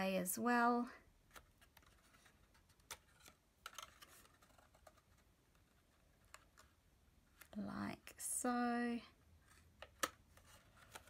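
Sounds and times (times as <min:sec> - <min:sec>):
cardstock taps and crinkles: 0:01.3 - 0:07.6, 0:09.8 - 0:11.0.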